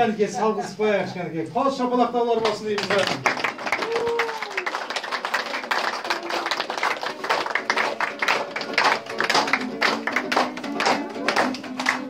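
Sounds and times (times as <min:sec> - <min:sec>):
people clapping in applause: 0:02.4 - 0:12.0.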